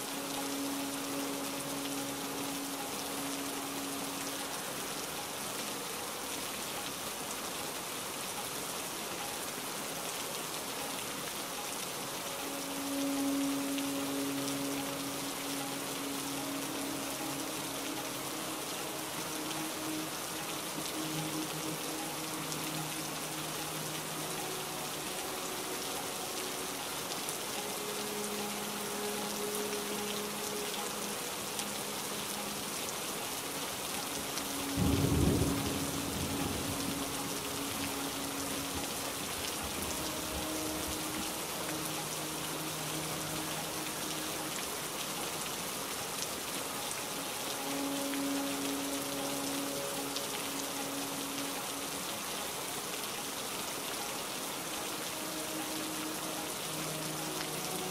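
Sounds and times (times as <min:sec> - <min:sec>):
heavy rain falling: 0:00.0 - 0:57.9
soft sustained music notes: 0:00.0 - 0:57.9
low rumble of thunder: 0:34.8 - 0:37.8.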